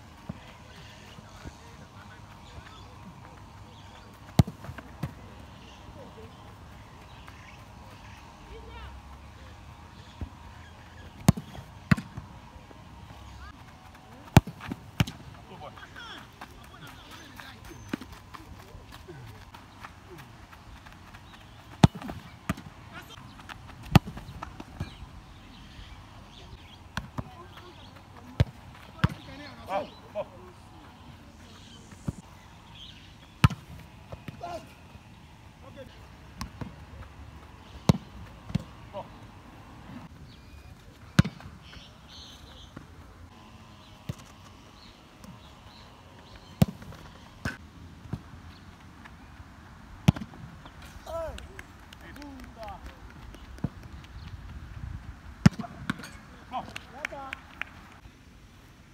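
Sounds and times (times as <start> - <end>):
football being kicked: 4.3 - 5.3, 11.2 - 12.3, 14.2 - 15.3, 21.7 - 25.0, 33.4 - 34.6, 37.8 - 38.7, 41.2 - 41.5, 46.6 - 48.2, 50.0 - 50.4, 55.4 - 56.1
running footsteps: 13.0 - 25.0.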